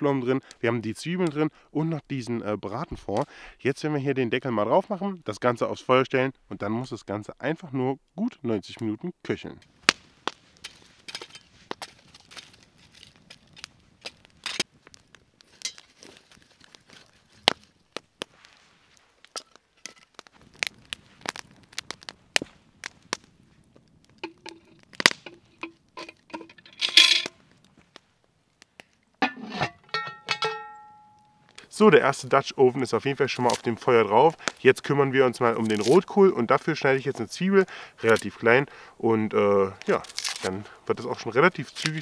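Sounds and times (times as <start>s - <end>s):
campfire crackling and popping: 0.0s - 42.0s
logs knocking: 24.1s - 26.8s
ringing metal clinks: 29.9s - 31.5s.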